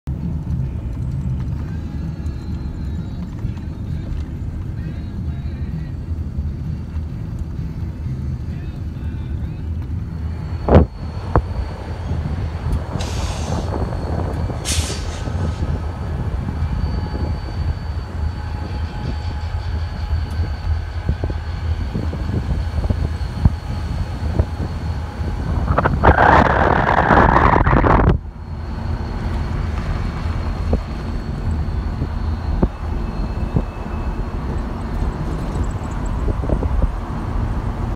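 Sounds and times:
car road and wind noise: 0:00.1 - 0:37.9
rushing hiss: 0:13.0 - 0:13.8, 0:14.6 - 0:15.8.

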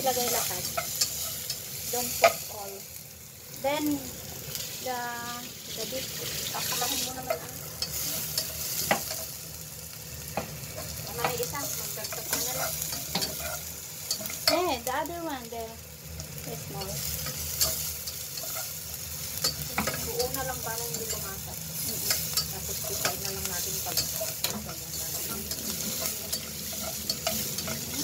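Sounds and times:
aromatics sizzling in a pan: 0:00.0 - 0:28.0
spatula clicking against pan: 0:17.2 - 0:18.6, 0:22.0 - 0:28.0.

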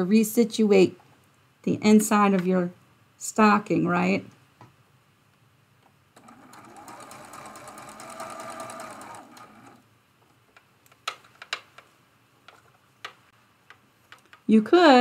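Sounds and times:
sewing machine stitching: 0:06.2 - 0:09.8.

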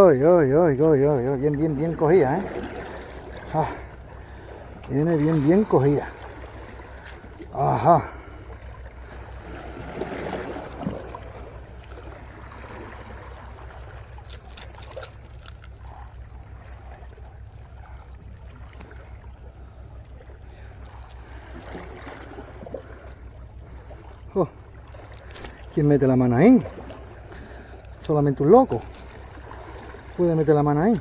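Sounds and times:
low rumble: 0:00.0 - 0:31.0
water lapping against rocks: 0:00.0 - 0:31.0
faint clicks of lure in net: 0:14.2 - 0:16.2.

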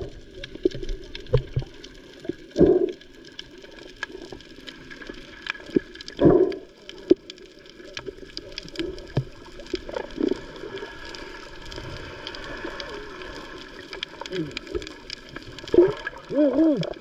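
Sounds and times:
underwater clicks and knocks: 0:00.0 - 0:03.0, 0:05.5 - 0:10.5
muffled underwater water and bubbles: 0:00.0 - 0:17.0.

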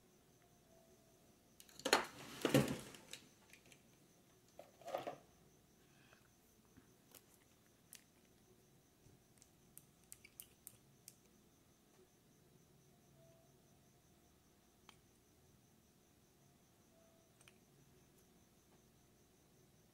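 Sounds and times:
plastic rustling clatter: 0:01.8 - 0:03.2.

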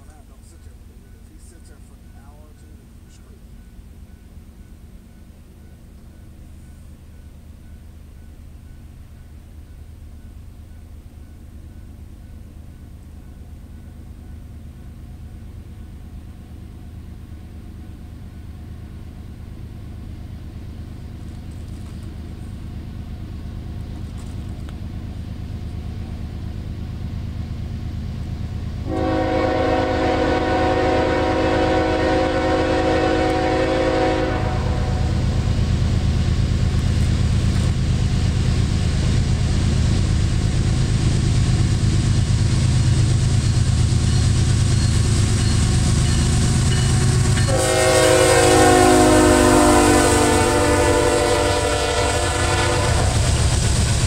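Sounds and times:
diesel locomotive engine: 0:00.0 - 0:54.0
train rolling: 0:00.0 - 0:54.0
locomotive horn blast: 0:28.8 - 0:35.3, 0:47.4 - 0:53.3.

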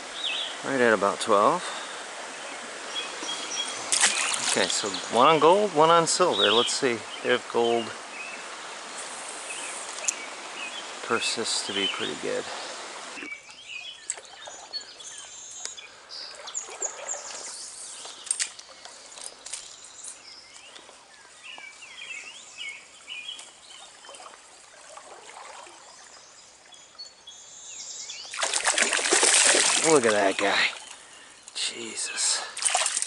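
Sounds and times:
small birds chirping: 0:00.0 - 0:33.0
stream flowing: 0:00.0 - 0:33.0
loud water splashing: 0:03.7 - 0:06.2, 0:28.3 - 0:31.0, 0:32.4 - 0:33.0.

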